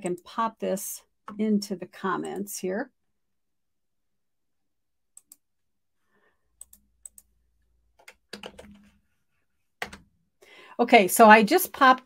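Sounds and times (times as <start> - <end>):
computer keyboard key presses: 8.0 - 8.9, 9.8 - 10.0.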